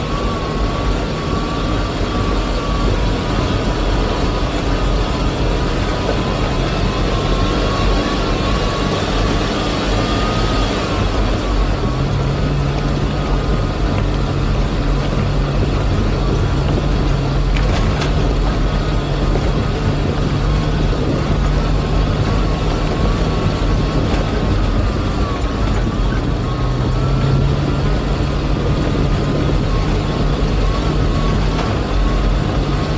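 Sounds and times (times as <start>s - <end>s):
vehicle engine running: 0.0s - 32.9s.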